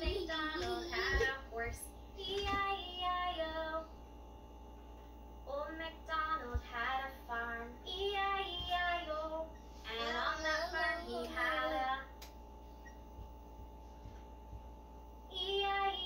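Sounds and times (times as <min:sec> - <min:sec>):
faint steady hum: 0:00.0 - 0:16.0
high child-like singing voice: 0:09.9 - 0:12.0.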